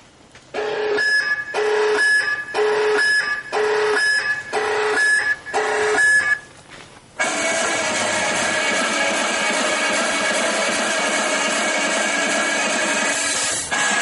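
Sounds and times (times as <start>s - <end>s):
electronic two-tone alarm: 0.6s - 6.5s.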